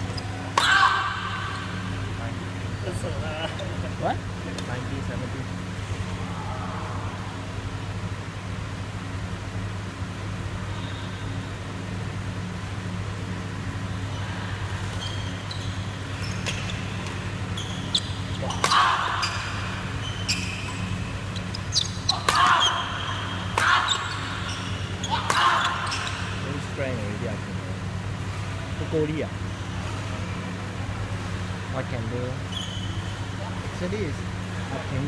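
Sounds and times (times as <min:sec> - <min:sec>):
shoes squeaking on court floor: 0:00.0 - 0:00.6, 0:14.8 - 0:26.7, 0:32.3 - 0:34.7
rackets hitting shuttlecock: 0:00.0 - 0:01.9, 0:15.8 - 0:26.5
low hum: 0:00.0 - 0:35.0.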